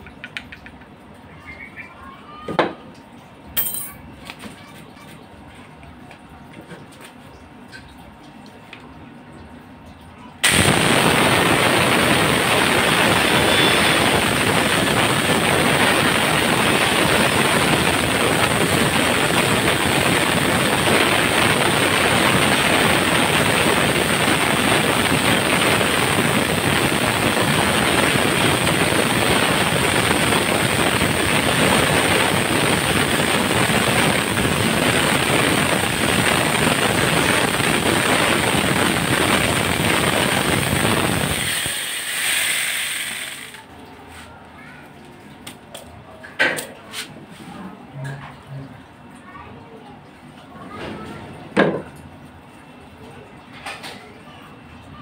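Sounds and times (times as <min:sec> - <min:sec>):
angle grinder motor whine: 0:10.4 - 0:20.5.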